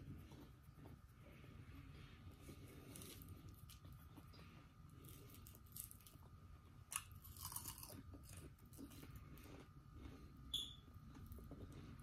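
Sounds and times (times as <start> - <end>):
chewing and crunching onion ring: 2.4 - 12.0.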